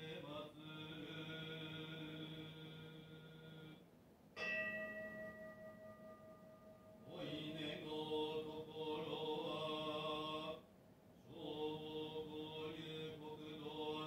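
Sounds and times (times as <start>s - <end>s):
man chanting: 0.0s - 3.8s, 7.1s - 10.6s, 11.4s - 14.0s.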